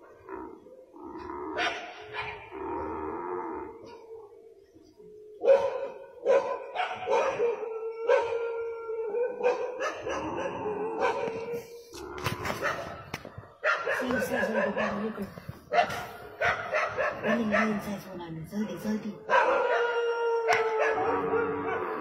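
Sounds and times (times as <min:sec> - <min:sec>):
dogs howling: 0:00.0 - 0:22.0
dogs barking: 0:01.2 - 0:02.6, 0:05.4 - 0:11.7, 0:12.3 - 0:22.0.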